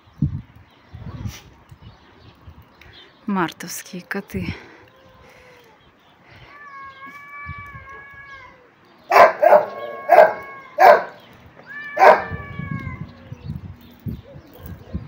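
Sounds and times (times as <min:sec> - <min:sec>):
cats yowling: 0:06.4 - 0:13.4
dog barking: 0:09.1 - 0:11.2, 0:12.0 - 0:12.4.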